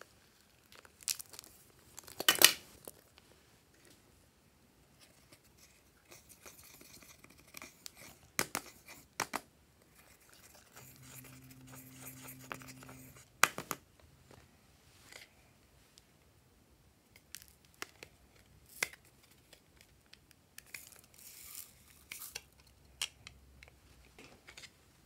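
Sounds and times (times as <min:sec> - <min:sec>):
tool scraping powder eyeshadow: 0:10.0 - 0:13.3.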